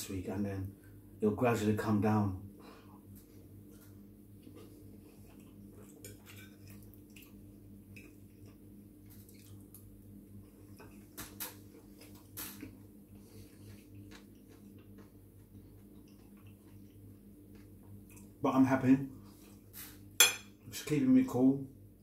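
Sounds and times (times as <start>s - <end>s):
steady low hum: 0.0s - 22.0s
chewing: 3.8s - 18.4s.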